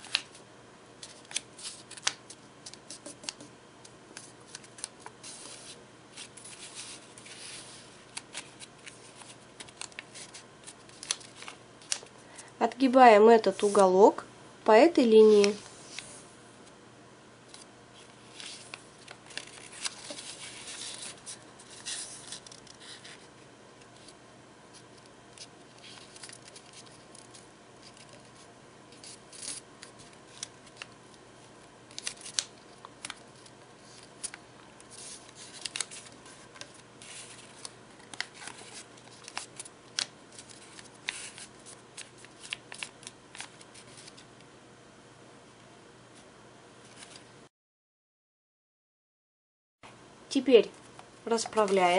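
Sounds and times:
paper creases crackling: 0:00.0 - 0:00.4, 0:01.0 - 0:03.5, 0:04.1 - 0:12.5, 0:15.2 - 0:16.1, 0:17.5 - 0:23.3, 0:24.0 - 0:31.0, 0:31.9 - 0:44.3, 0:51.3 - 0:51.9
paper rustling and crinkling: 0:01.0 - 0:03.5, 0:04.2 - 0:12.4, 0:17.5 - 0:23.3, 0:24.0 - 0:31.0, 0:31.9 - 0:44.3, 0:46.8 - 0:47.3, 0:51.3 - 0:51.9.

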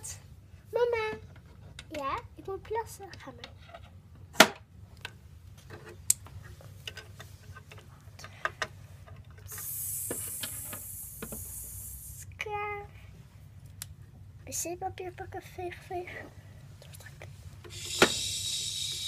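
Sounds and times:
child making hissing sound: 0:09.5 - 0:12.3, 0:17.7 - 0:19.0.

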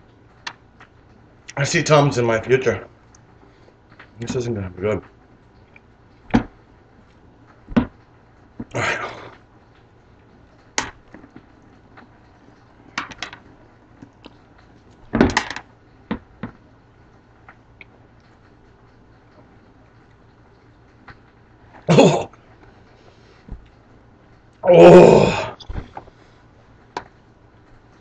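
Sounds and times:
man chewing a lemon: 0:14.0 - 0:14.4.

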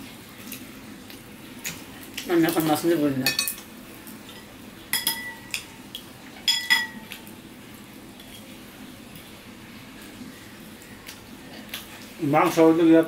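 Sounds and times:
spoon clinking against ceramic dishes: 0:03.2 - 0:03.6, 0:04.9 - 0:05.7, 0:06.4 - 0:07.0.

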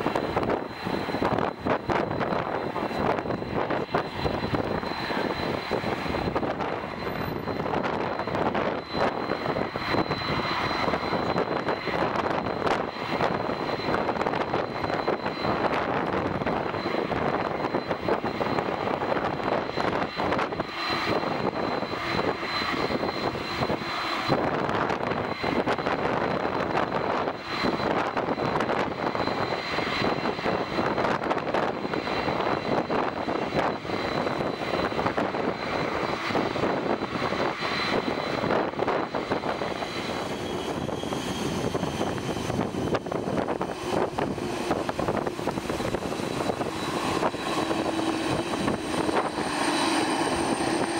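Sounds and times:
high engine whine: 0:00.0 - 0:50.9
jet engines rushing: 0:00.0 - 0:50.9.

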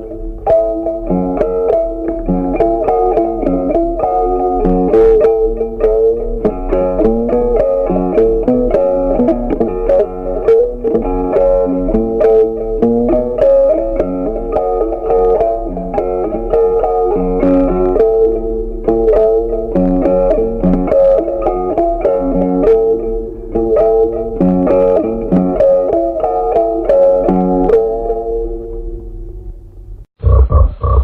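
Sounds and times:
plucked guitar melody: 0:00.0 - 0:29.6.

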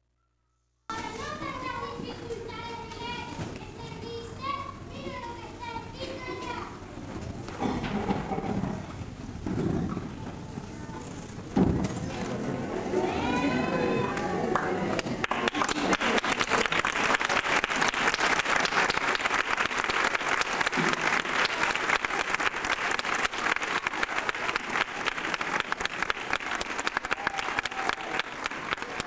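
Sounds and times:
audience applauding: 0:13.1 - 0:29.0.

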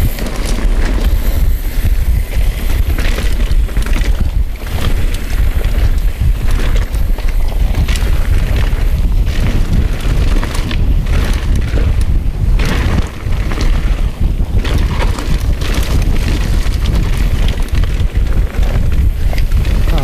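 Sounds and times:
bike rattling over bumps: 0:00.0 - 0:20.0
tyres crunching over loose dirt: 0:00.0 - 0:20.0
wind buffeting microphone: 0:00.0 - 0:20.0.

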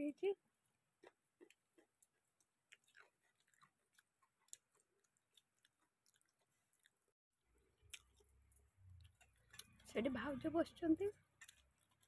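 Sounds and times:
clicks and chewing: 0:01.0 - 0:07.0, 0:07.9 - 0:10.0, 0:11.1 - 0:12.0.

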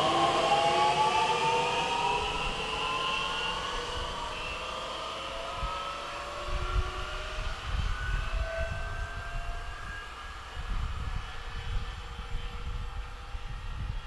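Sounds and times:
electric train motors whining: 0:00.0 - 0:13.2
wind noise on microphone: 0:05.3 - 0:14.0.

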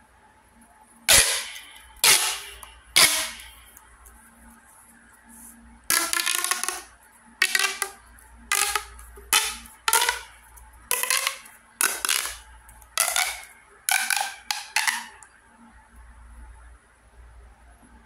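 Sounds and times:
plastic pop tube ratcheting: 0:01.1 - 0:03.8, 0:05.9 - 0:15.3.

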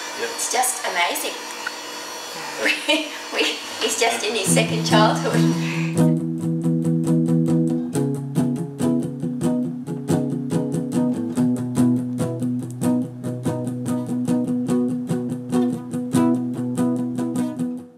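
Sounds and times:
plucked guitar notes: 0:04.4 - 0:17.9.

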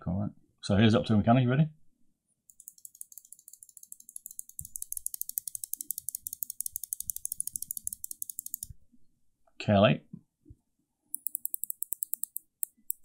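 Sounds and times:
mouse switch clicking rapidly: 0:02.5 - 0:08.7, 0:11.2 - 0:13.0.

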